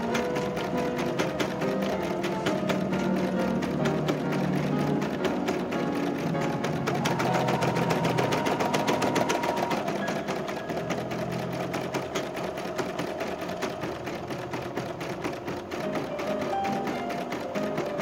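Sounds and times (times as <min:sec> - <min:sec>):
embroidery machine stitching: 0:00.0 - 0:18.0.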